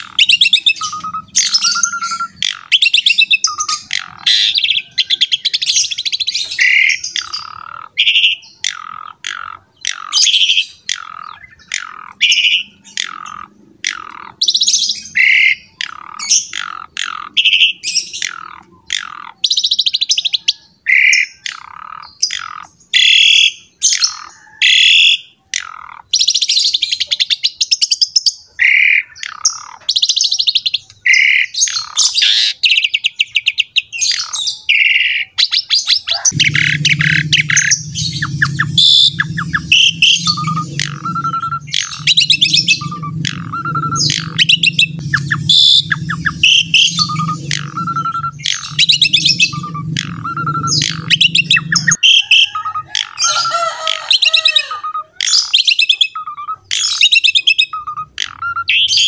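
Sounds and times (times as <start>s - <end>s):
starling singing: 0.0s - 59.0s
low drone: 36.1s - 54.8s.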